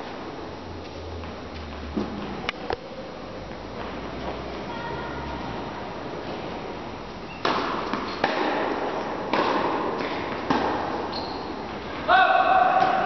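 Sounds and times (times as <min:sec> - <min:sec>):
tennis ball strikes echoing: 0:07.4 - 0:13.0.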